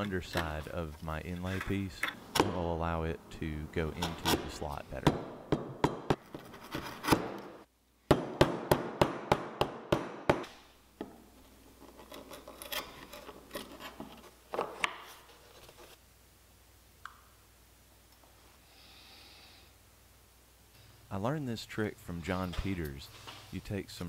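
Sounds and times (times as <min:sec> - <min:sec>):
wood scraping: 0:00.0 - 0:02.7, 0:11.4 - 0:16.0.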